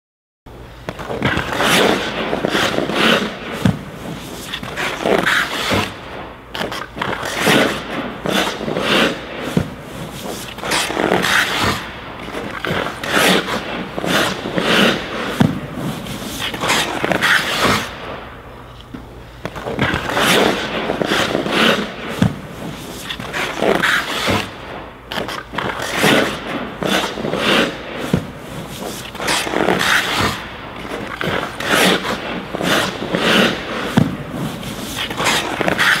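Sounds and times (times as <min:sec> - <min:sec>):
skate blades scraping ice: 0:00.8 - 0:36.0.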